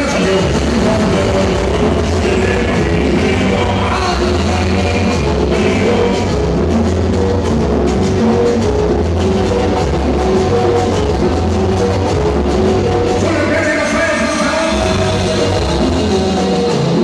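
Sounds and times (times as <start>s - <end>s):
loud dance music with heavy bass: 0.0s - 17.0s.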